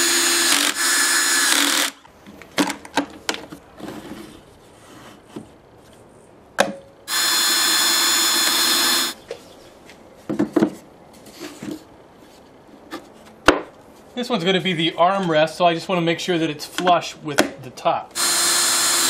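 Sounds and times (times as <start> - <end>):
cordless drill boring wood: 0.0 - 2.0, 7.1 - 9.2, 18.2 - 19.0.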